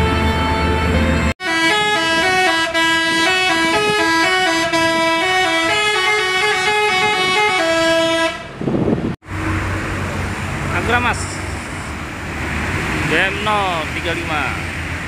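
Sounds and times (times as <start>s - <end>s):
multi-tone air horn tune: 1.4s - 8.5s.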